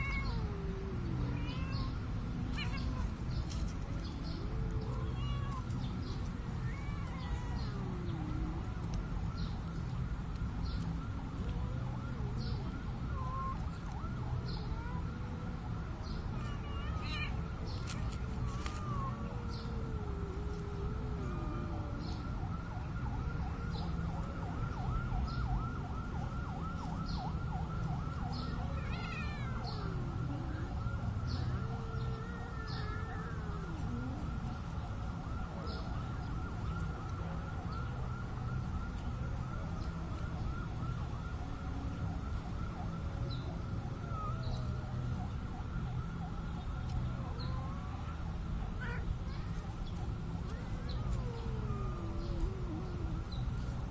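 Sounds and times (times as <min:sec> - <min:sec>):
cats yowling: 0:00.0 - 0:08.9, 0:13.2 - 0:15.5, 0:16.3 - 0:22.4, 0:28.3 - 0:34.7, 0:43.9 - 0:44.8, 0:46.9 - 0:49.8, 0:50.4 - 0:53.9
steady low rumble: 0:17.3 - 0:23.2.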